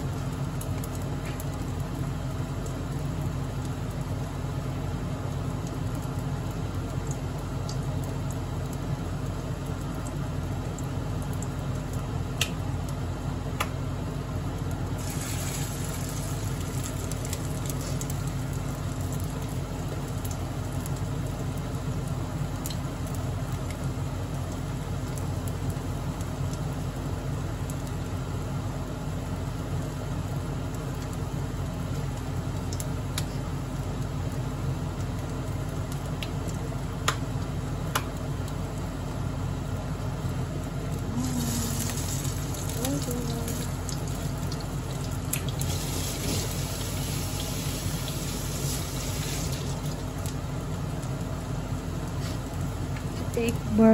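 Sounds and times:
kitchen fan hum: 0.0s - 53.9s
patties frying in oil: 0.0s - 53.9s.

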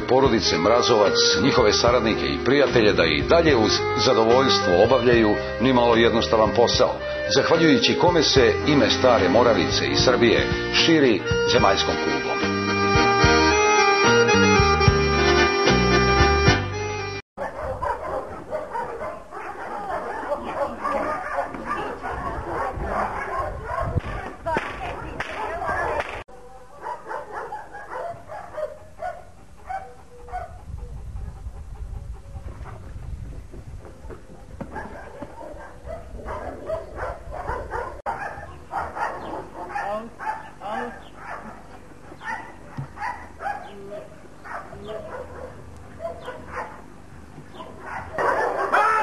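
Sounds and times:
dog barking: 17.4s - 31.4s, 34.1s - 49.0s
low rumbling noise: 28.8s - 38.8s.

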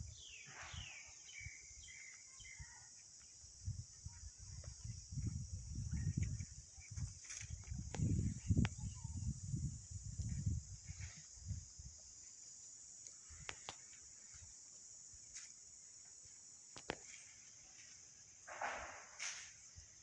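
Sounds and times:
insects droning: 0.0s - 20.0s.

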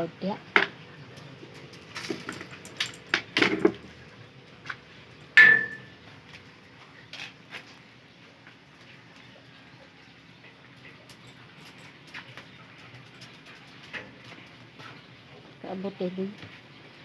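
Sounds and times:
sharp ringing knock: 5.4s - 5.9s.

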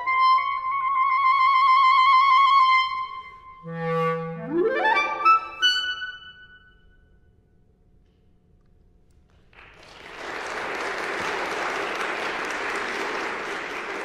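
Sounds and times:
audience applause: 9.4s - 14.0s.

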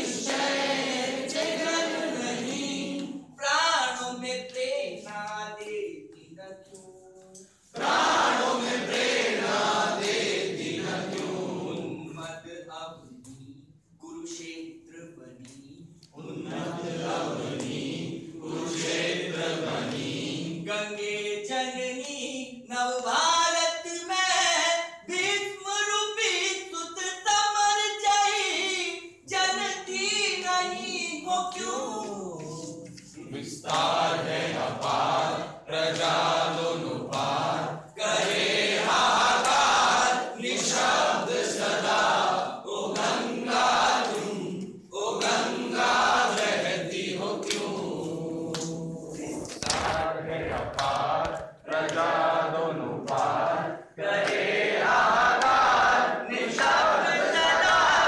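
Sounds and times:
group singing in unison: 0.0s - 3.4s, 7.6s - 12.5s, 16.0s - 21.5s, 31.4s - 58.0s.

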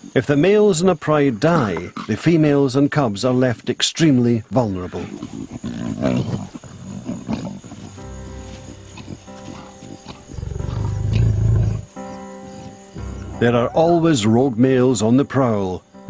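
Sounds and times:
lion growling: 4.6s - 14.0s
background music with sustained chords: 6.0s - 16.0s.

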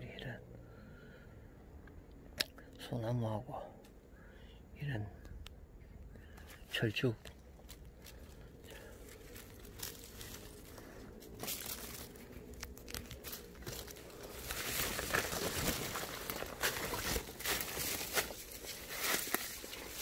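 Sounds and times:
footsteps crunching through dry leaves: 7.3s - 20.0s.

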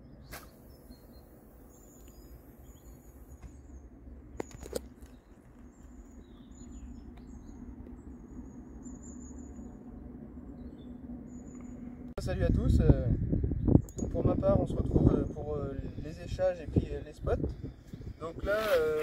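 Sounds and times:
small birds chirping: 0.0s - 12.1s
low outdoor rumble: 0.0s - 19.0s
fishing rod swish: 0.3s - 0.6s.

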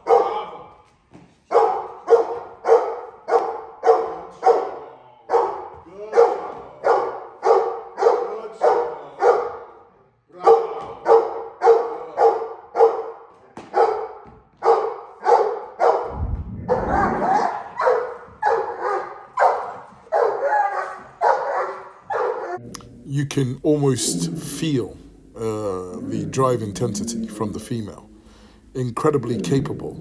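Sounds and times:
dogs barking hard and fast: 0.0s - 0.5s, 1.4s - 9.8s, 10.4s - 22.6s
low thud: 16.0s - 17.6s.

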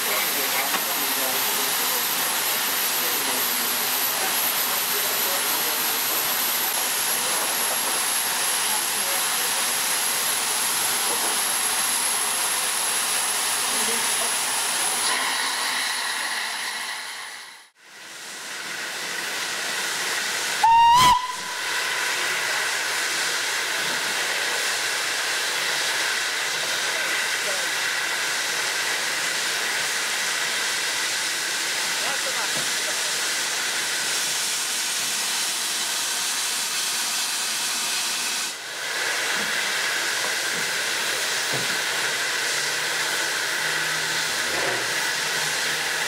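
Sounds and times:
steam hissing: 0.0s - 46.0s
steam whistle blast: 20.6s - 21.8s.

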